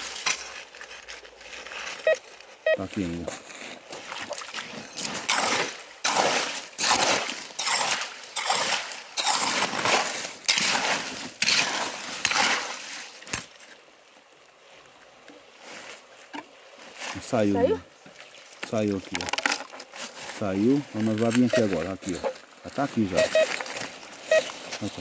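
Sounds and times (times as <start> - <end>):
water splashing: 3.0 - 25.0
digging tool chopping wet gravel: 5.0 - 13.5.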